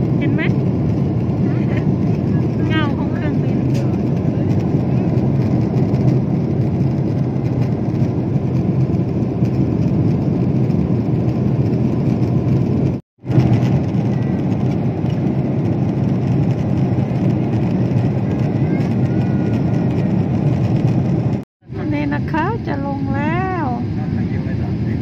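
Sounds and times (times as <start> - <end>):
airliner cabin engine noise: 0.0 - 25.0.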